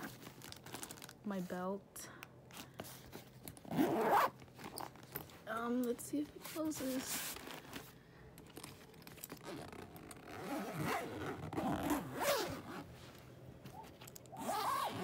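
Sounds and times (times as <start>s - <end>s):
suitcase zipper rasping: 3.6s - 5.0s, 9.2s - 12.9s, 13.7s - 15.0s.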